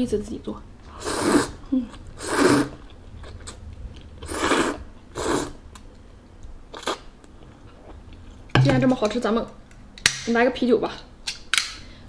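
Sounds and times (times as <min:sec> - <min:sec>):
person slurping noodles: 0:00.9 - 0:01.6, 0:02.2 - 0:02.8, 0:04.2 - 0:05.6.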